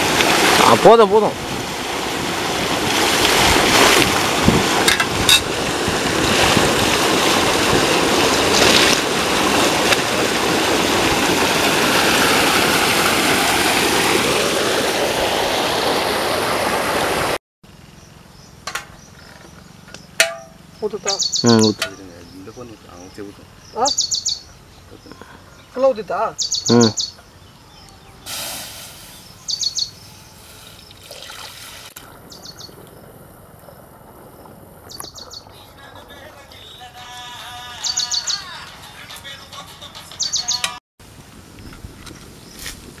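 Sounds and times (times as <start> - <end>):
water gushing from pipe: 0.0 - 17.4, 30.4 - 32.2
birds chirping: 17.7 - 31.4, 32.0 - 40.8.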